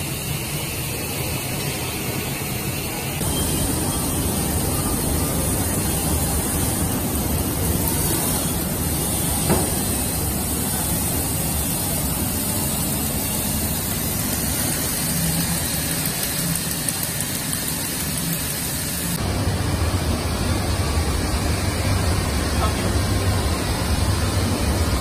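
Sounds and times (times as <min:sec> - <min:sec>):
knitting machine humming: 0:03.2 - 0:19.3.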